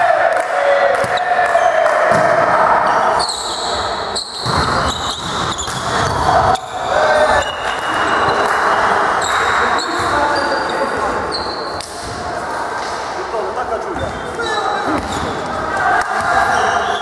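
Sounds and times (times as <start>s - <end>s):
players shouting: 0.0s - 12.7s, 14.0s - 17.0s
volleyball hits: 0.2s - 3.0s, 3.7s - 10.4s, 14.0s - 16.8s
shoes squeaking on floor: 3.2s - 8.4s, 9.2s - 11.8s, 13.9s - 15.5s.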